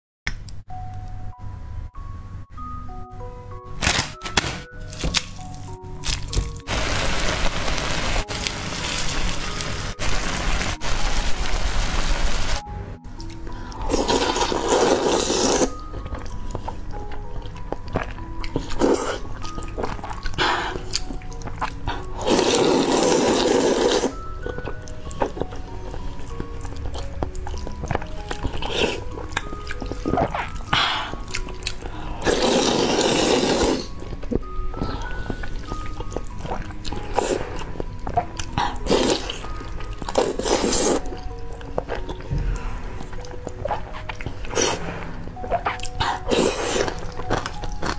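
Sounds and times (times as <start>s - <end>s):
background music with plucked melody: 0.5s - 47.9s
person slurping noodles: 13.8s - 15.8s, 18.6s - 19.2s, 21.9s - 24.2s, 32.2s - 34.0s, 38.6s - 39.5s, 40.1s - 41.2s, 42.5s - 47.1s
noodles being slurped: 13.8s - 16.3s, 18.0s - 24.3s, 26.2s - 34.1s, 38.4s - 42.2s, 43.0s - 47.9s.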